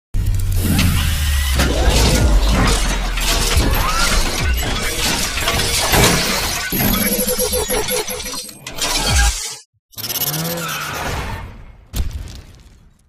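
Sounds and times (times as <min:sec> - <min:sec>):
low rumble: 0:00.7 - 0:05.6
steady tones: 0:01.3 - 0:06.0
crackle of shattering hits: 0:11.9 - 0:13.0.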